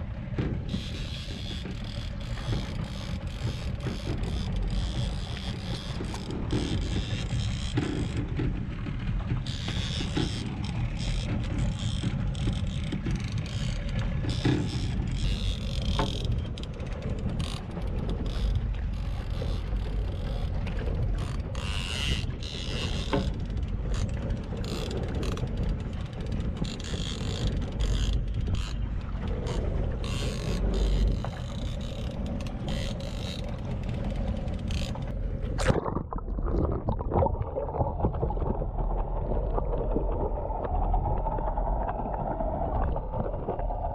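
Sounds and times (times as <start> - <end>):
low rumble of wind and boat: 0.0 - 43.9
water slapping against hull: 0.0 - 43.9
muffled underwater sound: 27.4 - 43.9.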